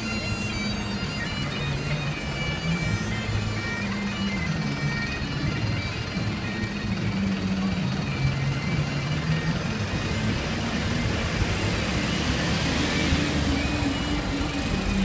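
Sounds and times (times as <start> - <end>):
vehicle engines crawling past: 5.5 - 15.0.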